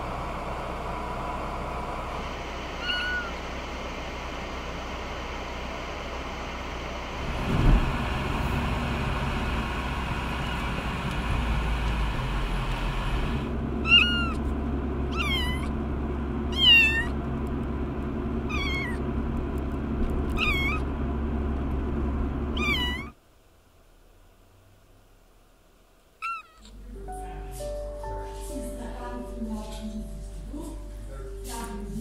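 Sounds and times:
car rumbling: 0:00.0 - 0:27.5
kitten meowing: 0:02.8 - 0:03.4, 0:13.8 - 0:14.5, 0:15.1 - 0:15.7, 0:16.5 - 0:17.2, 0:18.5 - 0:19.0, 0:20.3 - 0:20.9, 0:22.6 - 0:23.2, 0:26.2 - 0:26.8.

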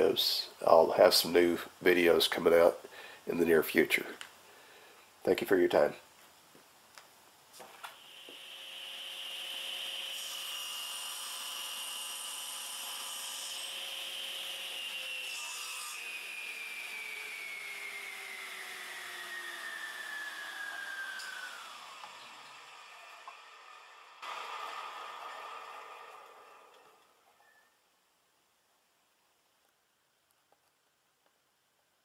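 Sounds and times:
wood being cut: 0:07.8 - 0:27.2
table saw blade whining: 0:07.8 - 0:27.7.

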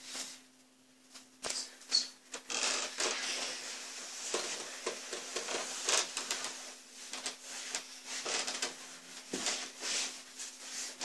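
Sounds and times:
faint steady hum: 0:00.0 - 0:11.0
rustling on a bed: 0:03.0 - 0:11.0.

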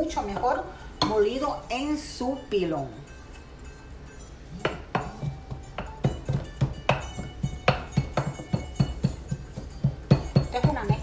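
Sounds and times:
background music: 0:00.0 - 0:11.0
wooden pestle pounding: 0:04.6 - 0:11.0.

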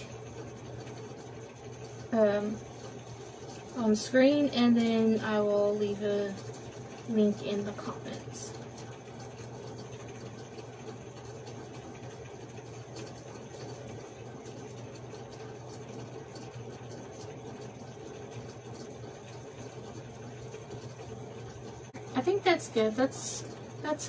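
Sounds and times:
low background hum: 0:00.0 - 0:24.0.

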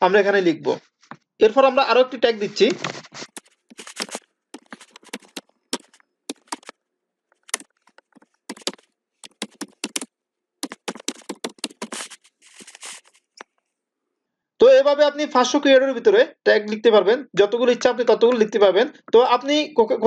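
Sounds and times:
computer keyboard typing: 0:03.3 - 0:06.8, 0:07.4 - 0:13.0.

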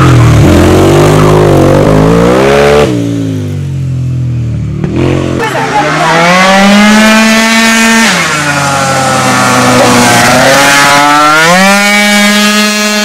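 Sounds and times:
scooter engine at high revs: 0:04.8 - 0:13.0.

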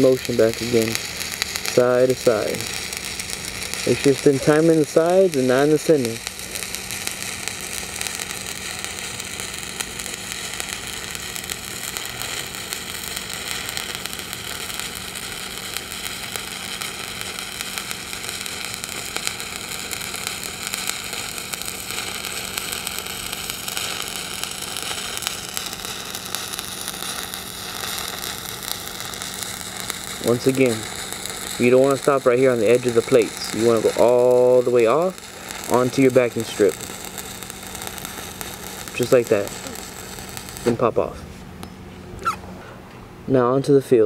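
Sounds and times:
welding arc crackling and sizzling: 0:00.0 - 0:41.2.

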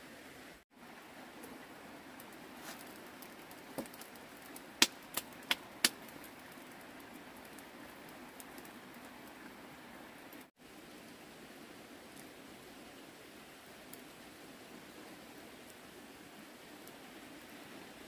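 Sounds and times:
wood fire hissing: 0:00.0 - 0:18.0
fire cracking: 0:00.6 - 0:18.0.

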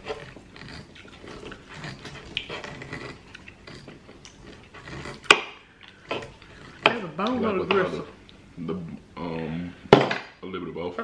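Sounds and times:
person chewing: 0:00.0 - 0:07.4.

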